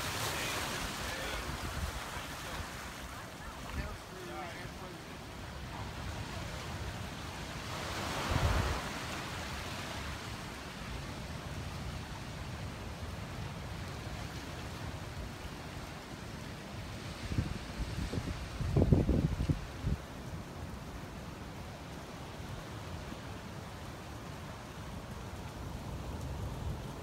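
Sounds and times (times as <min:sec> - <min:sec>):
wind buffeting microphone: 0:17.2 - 0:20.1.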